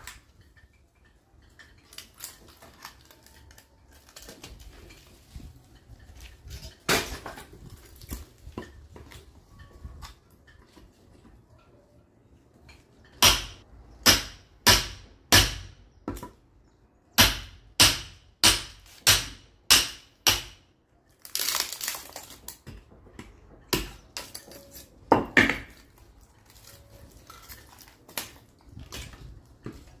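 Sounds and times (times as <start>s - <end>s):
sledgehammer striking steel chisel: 13.2s - 16.2s, 17.2s - 20.6s.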